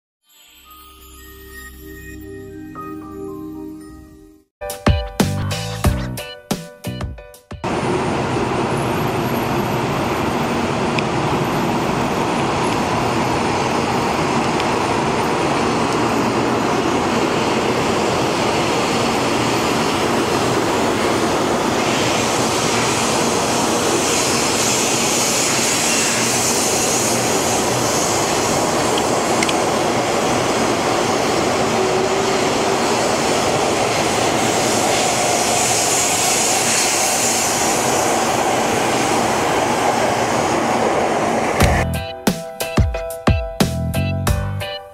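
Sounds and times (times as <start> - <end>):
train rushing roar: 7.6 - 42.2
loud high hiss: 7.7 - 41.8.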